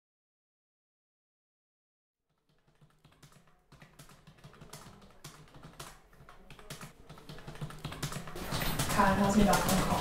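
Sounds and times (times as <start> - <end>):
computer keyboard typing: 2.4 - 10.0.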